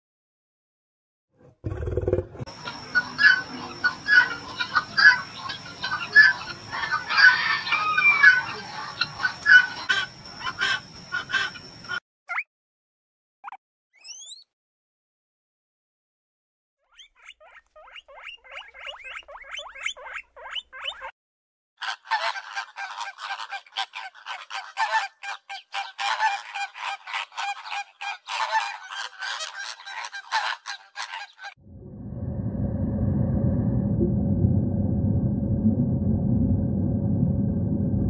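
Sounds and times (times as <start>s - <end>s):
birds calling rapidly: 2.6s - 12.4s
steady low rumble: 31.6s - 38.0s.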